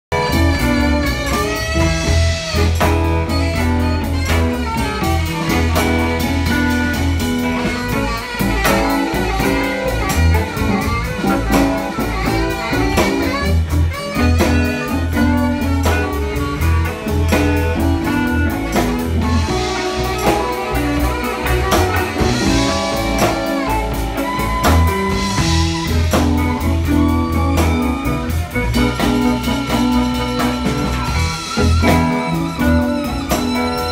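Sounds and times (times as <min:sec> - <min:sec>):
bass line: 0:00.0 - 0:33.9
drum kit: 0:00.1 - 0:33.9
electric guitar: 0:00.1 - 0:33.9
saxophone: 0:00.1 - 0:33.9.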